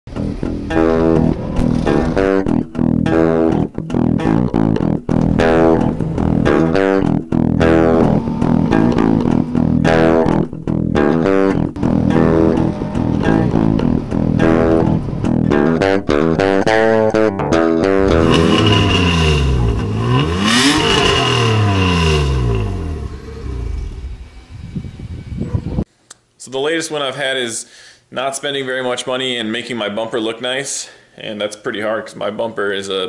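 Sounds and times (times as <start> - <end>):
guitar: 0.1 - 25.8
bass guitar: 0.1 - 25.9.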